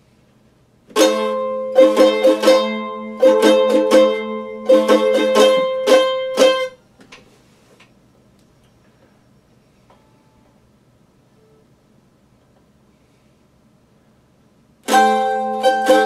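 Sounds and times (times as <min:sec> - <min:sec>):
mandolin strumming: 0:00.9 - 0:06.8, 0:14.8 - 0:16.0.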